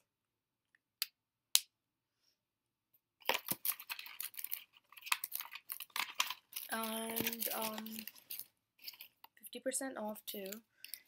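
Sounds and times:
cardboard box and paper crackling: 3.2 - 9.1.

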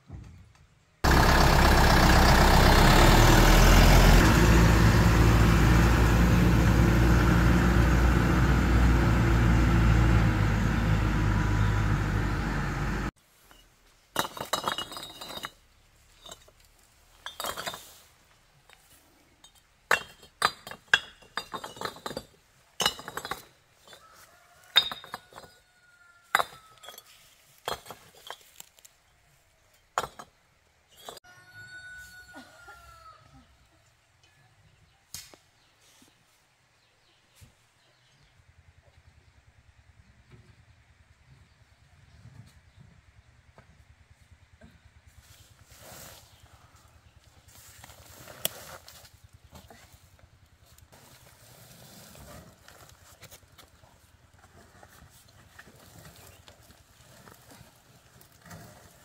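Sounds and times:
vehicle engine running: 1.0 - 13.1
hard objects clinking and knocking: 14.2 - 15.6, 19.4 - 24.1.

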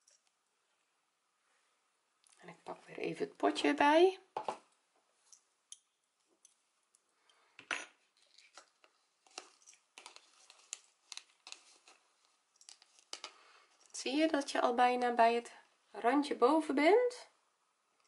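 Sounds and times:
soft clicks and rustles: 8.1 - 14.0.

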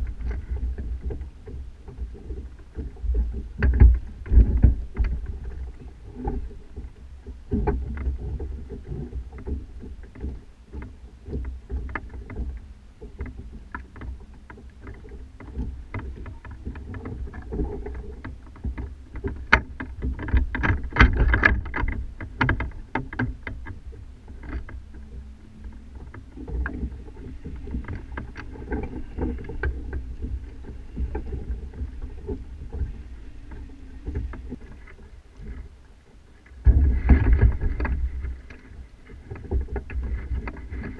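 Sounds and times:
rigging knocks and rattles: 2.4 - 6.5, 13.2 - 35.7, 36.6 - 40.9
low rumble: 21.6 - 40.9.

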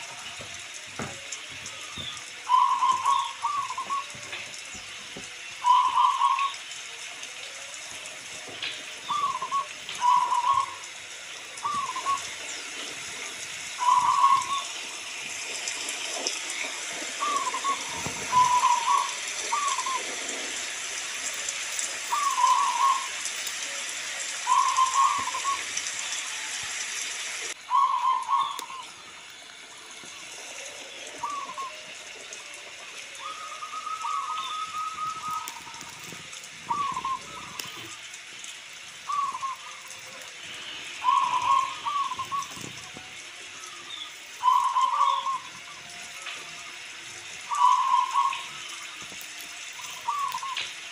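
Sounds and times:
dove cooing: 0.0 - 6.8, 8.5 - 15.0, 16.1 - 20.7, 21.4 - 23.2, 24.4 - 25.7, 27.7 - 29.0, 30.6 - 32.0, 33.0 - 38.0, 39.0 - 43.8, 44.4 - 49.0, 49.7 - 50.8
steady whistled tone: 0.0 - 26.9, 27.5 - 38.1, 39.0 - 50.9
rain hissing: 0.0 - 50.9.

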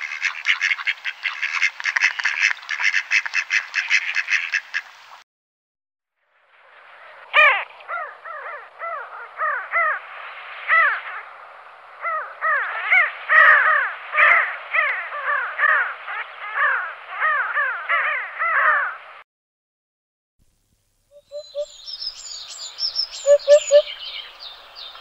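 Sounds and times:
flock of birds calling: 6.9 - 10.0, 12.0 - 19.0, 21.2 - 25.0.

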